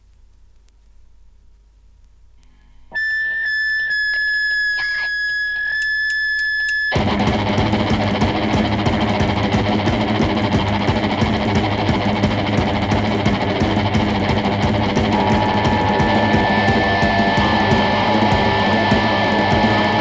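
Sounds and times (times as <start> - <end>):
electric guitar feedback whine: 2.5 - 20.0
punk band playing: 7.0 - 20.0.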